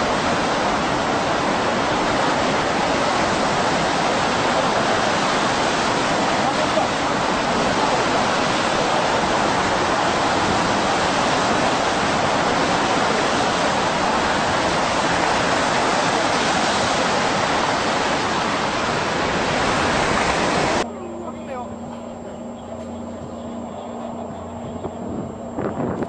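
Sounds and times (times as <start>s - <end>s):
seawater surging and churning: 0.0s - 26.0s.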